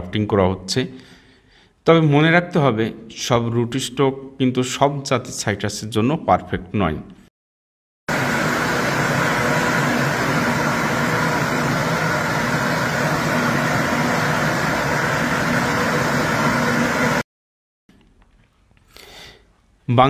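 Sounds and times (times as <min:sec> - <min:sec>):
orchard sprayer fan rushing: 0:08.1 - 0:17.2.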